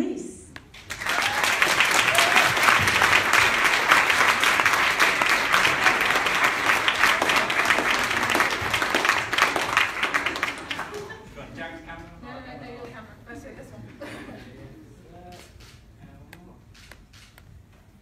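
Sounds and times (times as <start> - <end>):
audience applauding: 0.7 - 11.2.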